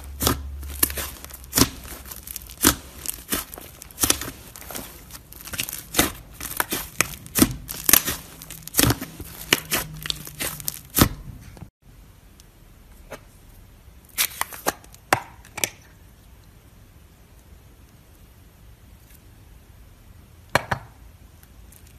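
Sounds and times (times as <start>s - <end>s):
slime popping and crackling: 0.0s - 11.2s.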